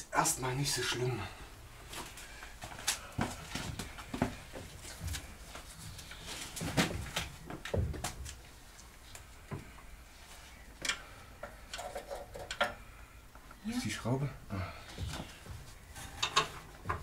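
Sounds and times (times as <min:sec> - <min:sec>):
tools and metal parts clunking: 0:16.0 - 0:17.0.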